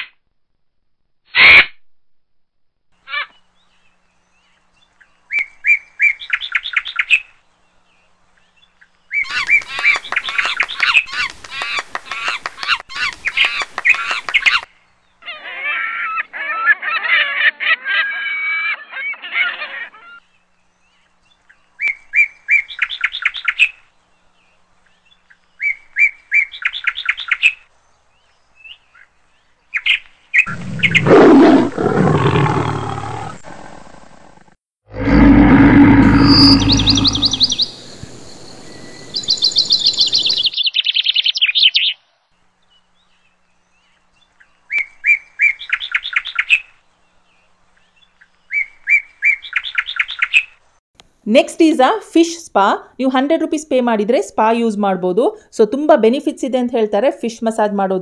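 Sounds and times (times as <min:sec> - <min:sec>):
bird-like chirping: 0:29.7 - 0:31.3, 0:35.1 - 0:42.0
loud low roar: 0:30.5 - 0:38.2
dense chattering calls: 0:35.0 - 0:37.8.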